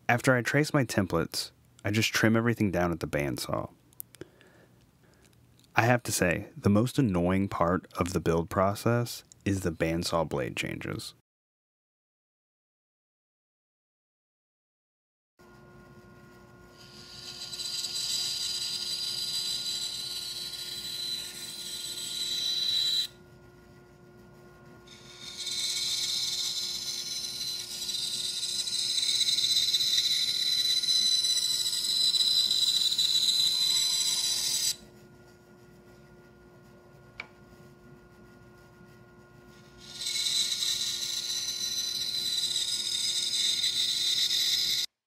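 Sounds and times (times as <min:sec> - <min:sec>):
bandsaw motor humming: 0:16.3 - 0:35.1, 0:38.8 - 0:44.9
bandsaw cutting wood: 0:16.8 - 0:23.2, 0:24.9 - 0:34.8, 0:39.8 - 0:44.9.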